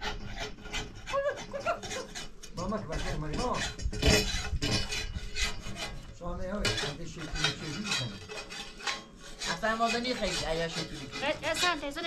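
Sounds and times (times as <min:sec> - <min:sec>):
metal spatula scraping metal pan: 0:00.0 - 0:12.0.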